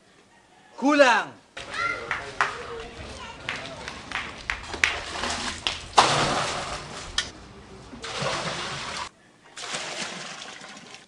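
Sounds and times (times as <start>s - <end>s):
water pouring into metal drum: 4.6s - 7.3s, 8.0s - 11.0s.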